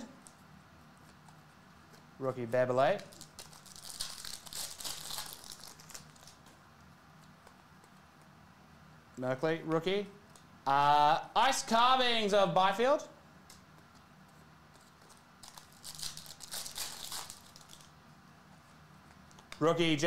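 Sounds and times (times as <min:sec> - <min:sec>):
trading cards crinkling rustle: 0:03.0 - 0:06.6, 0:13.5 - 0:19.6.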